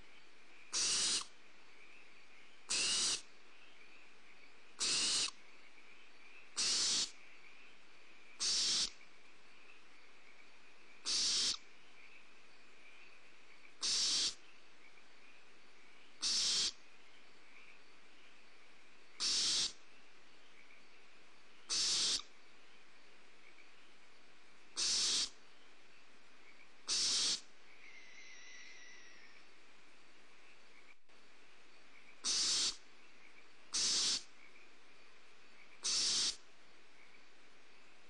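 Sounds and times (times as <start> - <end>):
owlets hissing begging calls: 0.8 - 1.3, 2.7 - 3.3, 4.8 - 5.4, 6.6 - 7.1, 8.4 - 8.9, 11.0 - 11.6, 13.8 - 14.4, 16.2 - 16.8, 19.2 - 19.8, 21.7 - 22.2, 24.8 - 25.4, 26.9 - 27.5, 32.2 - 32.8, 33.7 - 34.3, 35.8 - 36.4.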